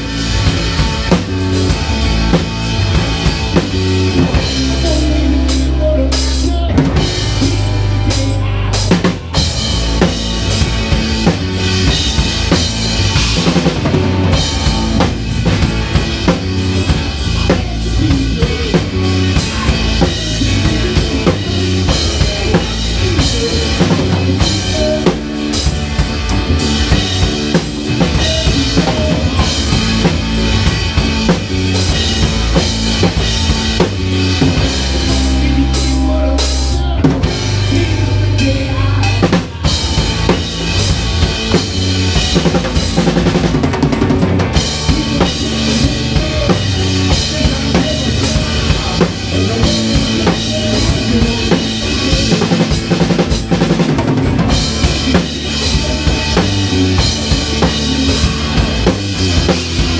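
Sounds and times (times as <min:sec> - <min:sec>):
band's low held notes: 0:00.0 - 0:59.9
drum kit played hard: 0:00.0 - 0:59.9.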